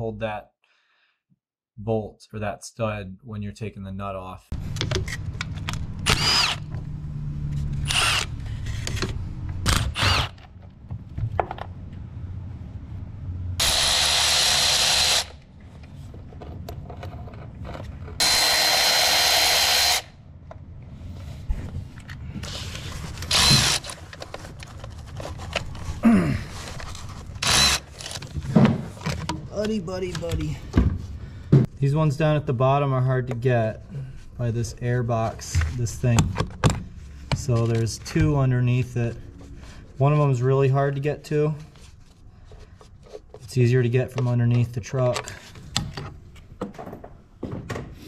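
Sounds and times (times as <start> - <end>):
electric ratchet motor whine: 6.0 - 6.7, 7.8 - 8.3, 9.8 - 10.4, 13.6 - 15.4, 18.2 - 20.1, 23.3 - 23.9, 27.4 - 27.8
tool handling clicks and knocks: 28.0 - 31.7, 44.1 - 48.0.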